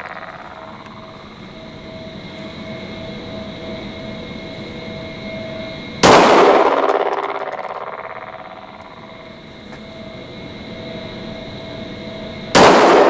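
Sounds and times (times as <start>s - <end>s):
steady hum: 0.0s - 13.0s
pistol shot: 6.0s - 8.7s, 12.6s - 13.0s.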